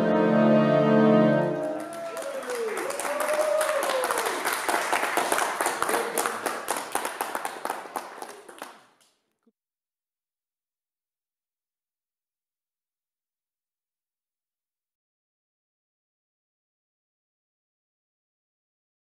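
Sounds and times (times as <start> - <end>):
held music chord: 0.0 - 1.8
people cheering: 1.4 - 8.8
audience clapping: 1.5 - 9.2.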